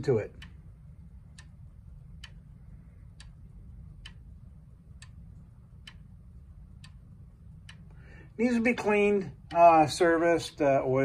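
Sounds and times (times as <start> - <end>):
clock ticking: 0.0 - 10.9
low steady hum: 0.0 - 11.0.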